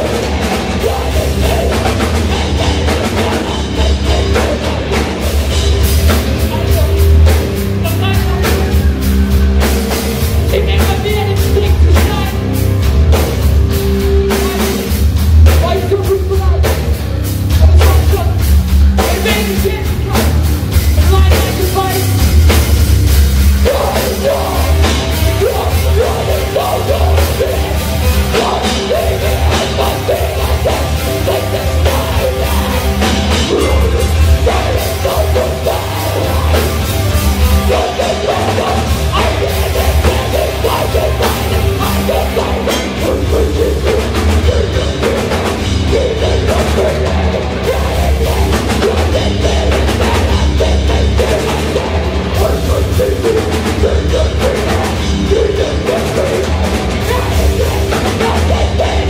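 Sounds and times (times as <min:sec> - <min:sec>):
heavy rock band playing: 0:00.0 - 0:59.0.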